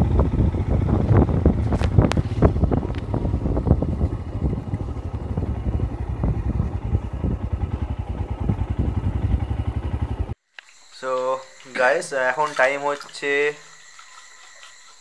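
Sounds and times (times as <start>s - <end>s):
motorcycle engine running: 0.0s - 10.4s
wind noise on microphone: 0.0s - 10.4s.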